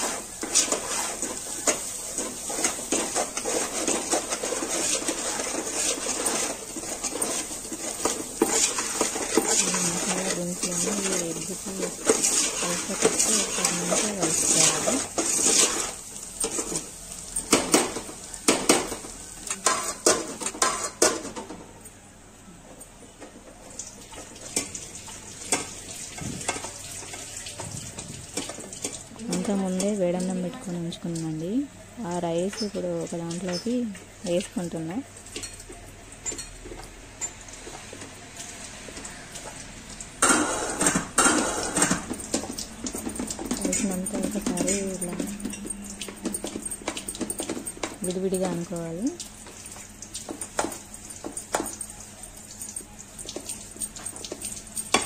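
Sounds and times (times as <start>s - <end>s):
metal ladle scraping a pot: 0.0s - 16.8s.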